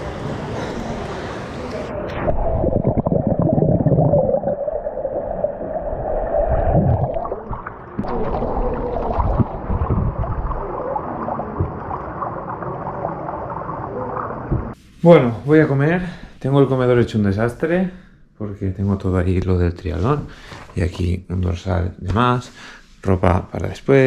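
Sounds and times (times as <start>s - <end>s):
wind buffeting microphone: 9.1s - 10.7s.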